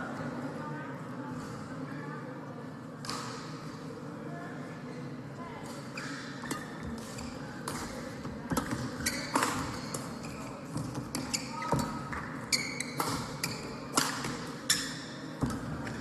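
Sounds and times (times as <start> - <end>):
shoe squeaks: 5.9 - 7.5, 8.7 - 13.8, 14.6 - 15.2.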